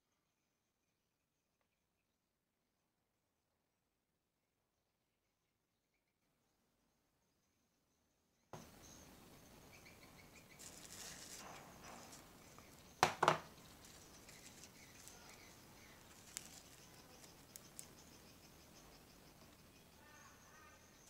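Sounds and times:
slime rustling: 10.6s - 12.4s, 13.5s - 18.0s
sticky slime crackle: 13.6s - 18.0s.

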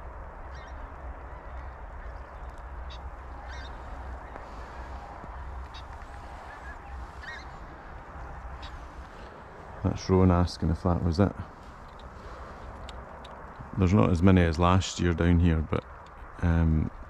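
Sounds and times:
wind rumbling on microphone: 0.0s - 17.0s
geese honking: 2.8s - 10.2s.

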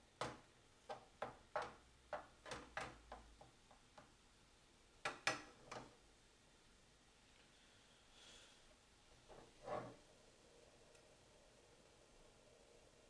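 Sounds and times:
spatula knocking on frying pan: 0.2s - 3.6s.

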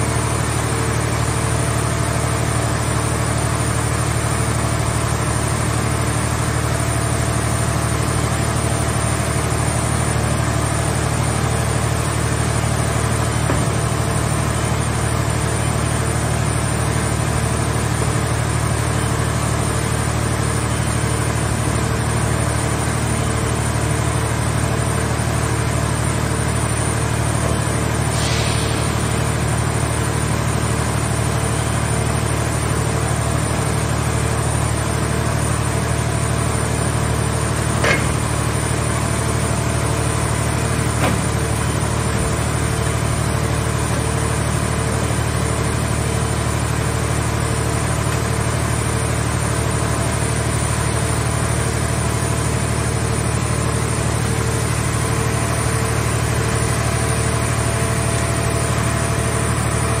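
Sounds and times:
hydraulic machine humming: 0.0s - 60.0s
short knocks: 37.8s - 38.3s.

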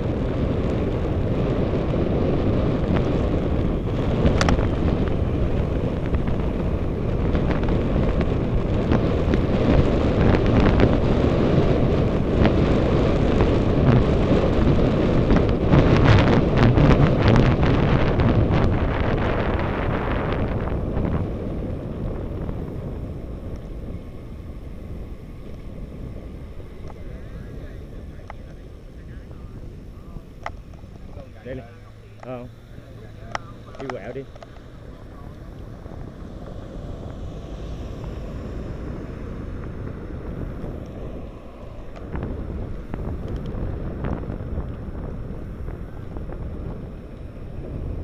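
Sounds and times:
road rumble: 0.0s - 48.0s
wind buffeting microphone: 0.0s - 48.0s.

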